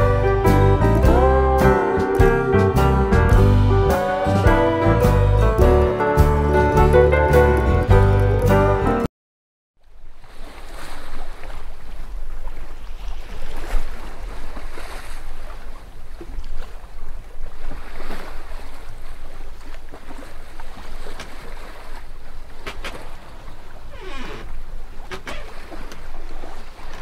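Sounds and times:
sea water rushing and splashing: 9.9 - 27.0.

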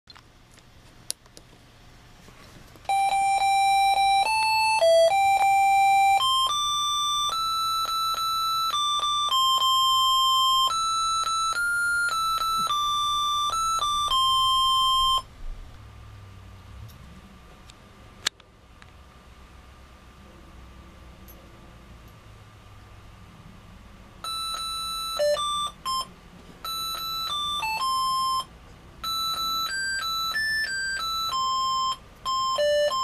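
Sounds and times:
electronic beep melody: 2.9 - 15.3, 24.3 - 33.0.

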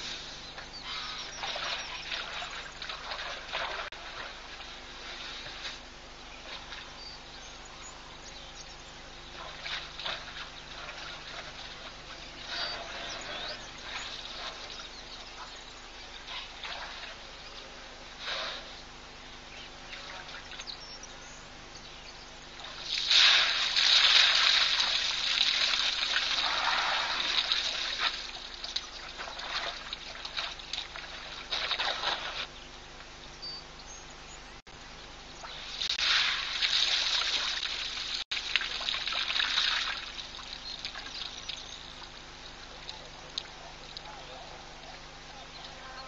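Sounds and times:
elephant drinking water splashing: 0.9 - 5.8, 9.4 - 14.9, 22.6 - 32.5, 35.7 - 44.1.

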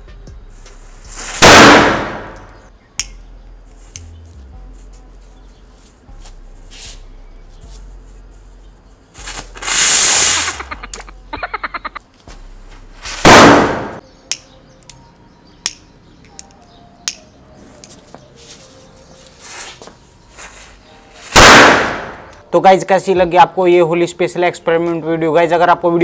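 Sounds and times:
rapid firecracker crackles: 0.8 - 2.4, 9.1 - 10.7, 20.4 - 22.3
firecracker blasts: 1.0 - 2.6, 9.2 - 10.6, 13.0 - 14.0, 21.2 - 22.3
sharp pops: 1.2 - 3.2, 13.1 - 14.4, 21.3 - 22.4.

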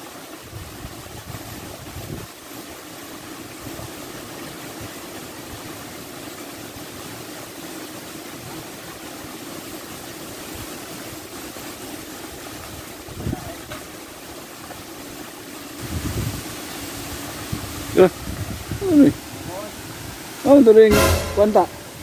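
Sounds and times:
shallow creek water stirring: 0.0 - 22.0.

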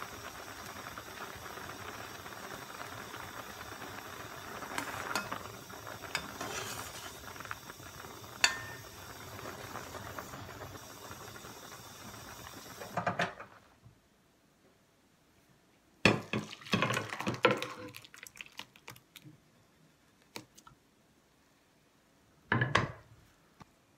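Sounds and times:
soup boiling in a pot: 0.0 - 13.8, 16.1 - 20.8.

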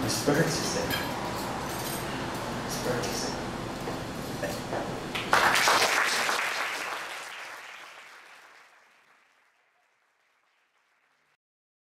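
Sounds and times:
audience applauding: 5.2 - 11.4.

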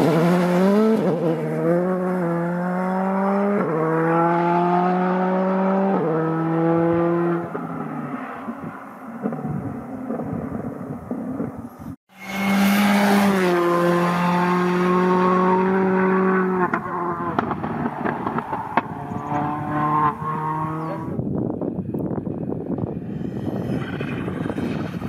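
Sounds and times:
rally car engine revving: 0.0 - 11.5, 12.2 - 21.2.

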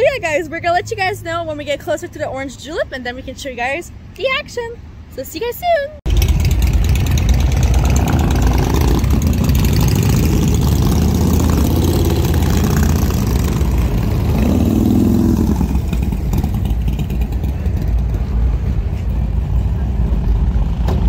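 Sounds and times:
car and motorcycle engines revving: 6.1 - 21.0.

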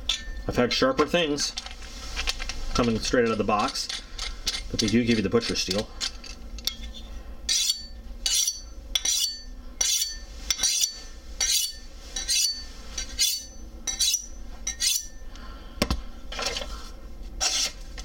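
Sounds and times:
knife scraping on honing steel: 3.4 - 15.2, 17.4 - 17.8.

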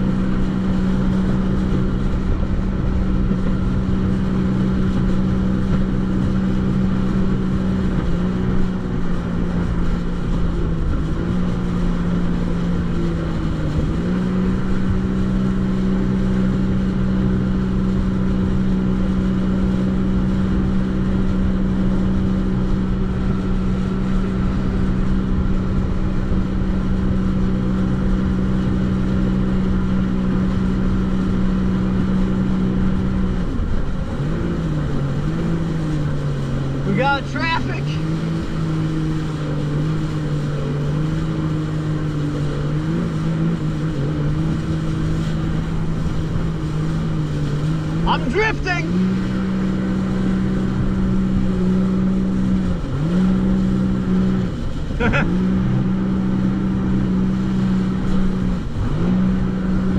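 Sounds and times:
jet ski engine drone: 0.0 - 59.9
wind and water rush: 0.0 - 59.9.

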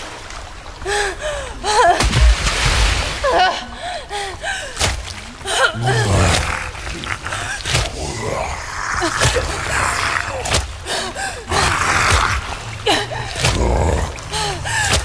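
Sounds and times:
splashing in shallow water: 0.0 - 15.0
low thumps: 2.0 - 3.2.

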